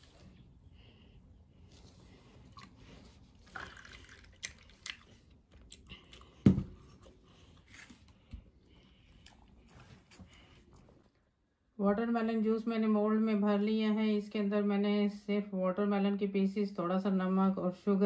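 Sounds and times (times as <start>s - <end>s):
juice pouring and dripping: 2.4s - 6.6s.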